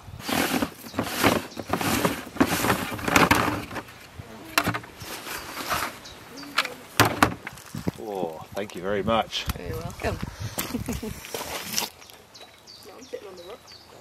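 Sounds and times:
plastic lid scraping and rustling: 0:00.2 - 0:08.0
rummaging: 0:00.2 - 0:08.0.

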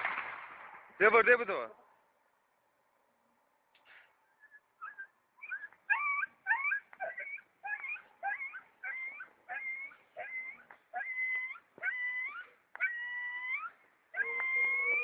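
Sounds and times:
dog whimpering: 0:04.4 - 0:15.0.

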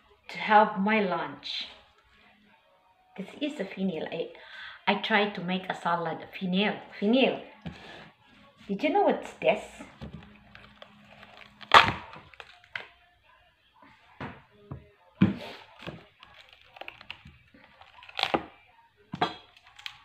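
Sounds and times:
fennel bulb cracking: 0:10.0 - 0:12.9, 0:15.7 - 0:18.6, 0:19.2 - 0:20.0.

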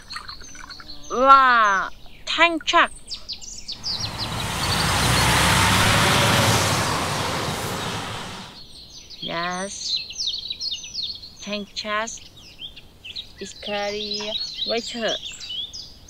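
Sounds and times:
birds chirping: 0:03.8 - 0:08.6
truck driving past: 0:03.8 - 0:08.6.

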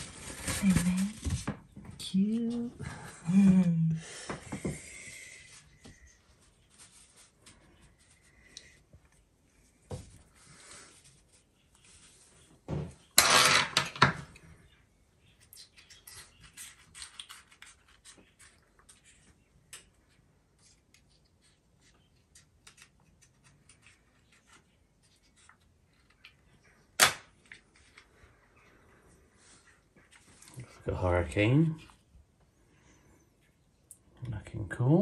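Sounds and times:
paper towel crinkling: 0:00.0 - 0:01.6.

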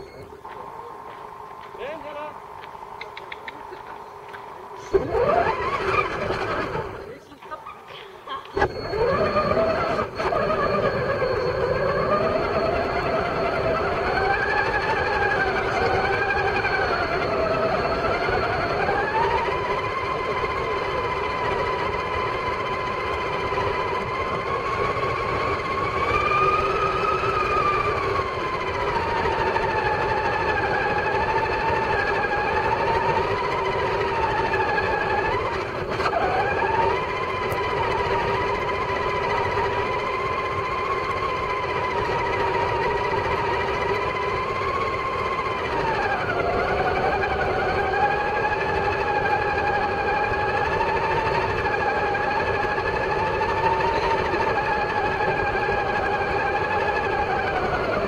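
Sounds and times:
sharp click: 0:02.6 - 0:04.5
toy truck motor whining: 0:03.0 - 0:58.0.

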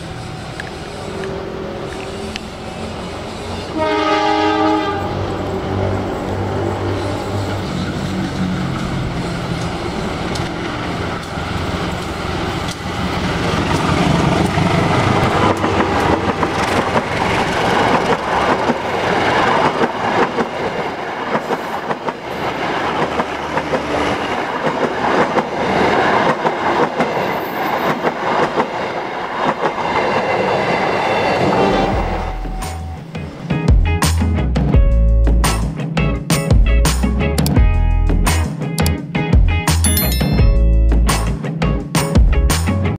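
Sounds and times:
diesel locomotive engine: 0:00.0 - 0:28.6
train wheels clickety-clack: 0:06.2 - 0:33.9.

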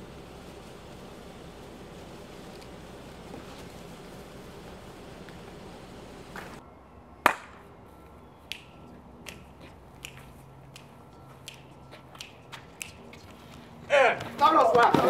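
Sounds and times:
finger snapping: 0:08.5 - 0:13.3.

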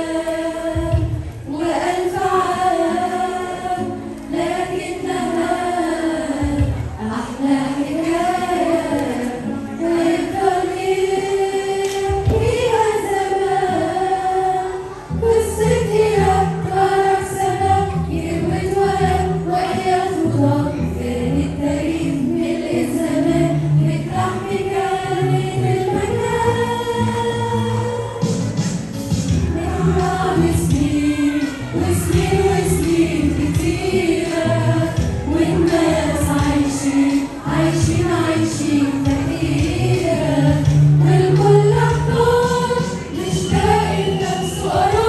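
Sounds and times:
women's choir singing a hymn: 0:00.0 - 0:45.0.

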